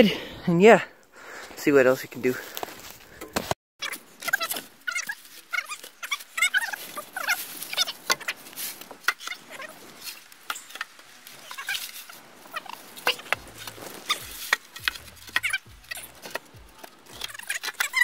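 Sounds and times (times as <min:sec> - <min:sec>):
dull thumps of poles set down: 0:02.6 - 0:03.6
wooden poles knocking together: 0:02.6 - 0:03.6, 0:04.2 - 0:18.0.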